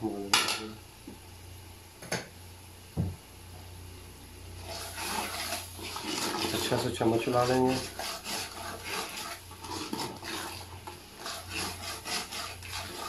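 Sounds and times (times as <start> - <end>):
food cooking in a pot: 0.0 - 13.0
dull thump: 3.0 - 3.2
rustling scraping noise: 4.6 - 13.0.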